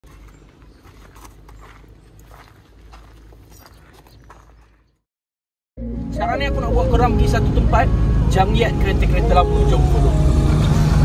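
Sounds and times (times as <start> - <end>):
footsteps on rough ground: 0.0 - 5.0
low steady rumble: 5.8 - 11.0.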